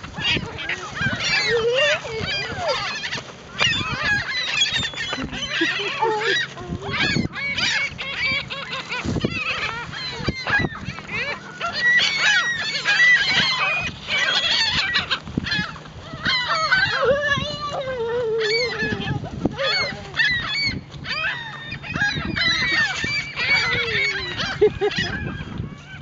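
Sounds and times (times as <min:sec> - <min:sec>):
flock of gulls calling: 0:00.0 - 0:26.0.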